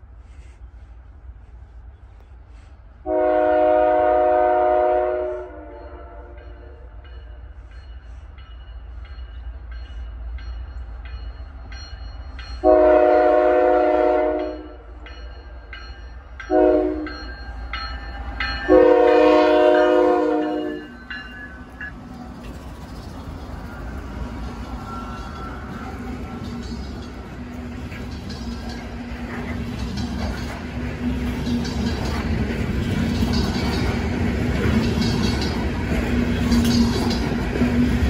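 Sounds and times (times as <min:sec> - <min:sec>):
low rumble of train: 0:00.0 - 0:38.0
train air horn blasts: 0:03.0 - 0:06.9, 0:12.6 - 0:14.8, 0:16.5 - 0:17.3, 0:18.6 - 0:21.0.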